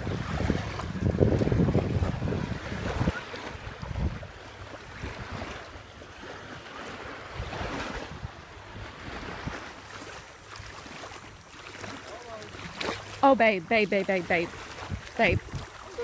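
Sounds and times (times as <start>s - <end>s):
wind buffeting microphone: 0.0s - 9.8s, 14.3s - 16.0s
sea water lapping: 0.0s - 16.0s.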